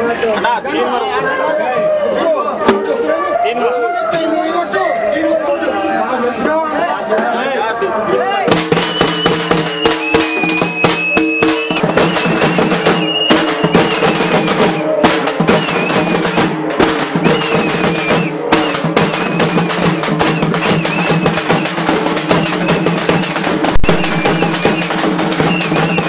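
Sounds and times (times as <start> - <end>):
drums beating fast rhythm: 2.6 - 3.1, 6.4 - 26.0
shrill whistle: 8.7 - 14.9, 15.5 - 16.5, 17.2 - 21.7, 23.8 - 26.0.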